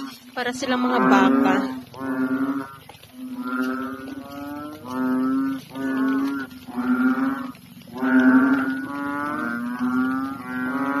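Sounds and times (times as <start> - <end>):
frogs croaking low: 0.0 - 11.0.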